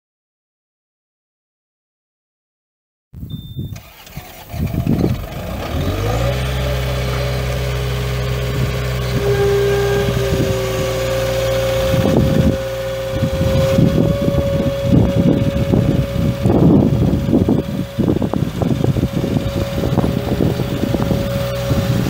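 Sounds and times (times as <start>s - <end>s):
diesel engine starting and idling: 3.3s - 22.0s
steady whine: 7.6s - 22.0s.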